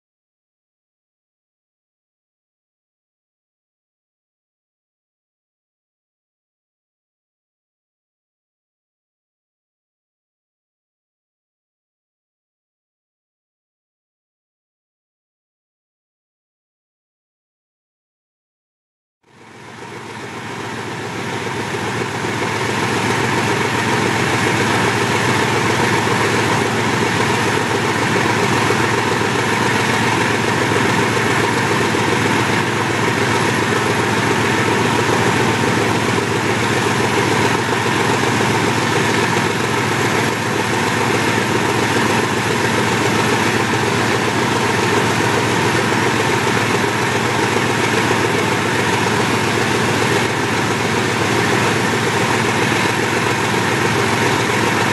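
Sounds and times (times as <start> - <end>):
diesel locomotive engine running hard: 19.3 - 54.9.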